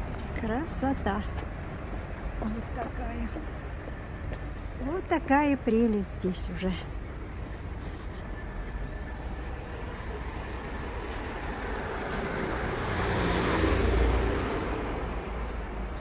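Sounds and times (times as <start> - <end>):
low hum of traffic: 0.0 - 16.0
car driving past: 11.8 - 15.3.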